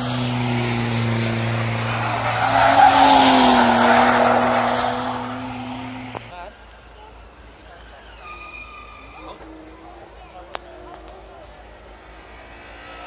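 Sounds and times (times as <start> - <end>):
motor vehicle humming: 0.0 - 6.4.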